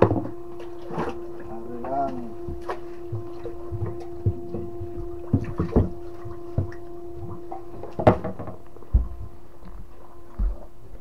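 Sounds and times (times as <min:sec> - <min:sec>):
knocks and thumps on boat hull: 0:00.0 - 0:01.2, 0:02.5 - 0:09.4
steady hum: 0:00.0 - 0:11.0.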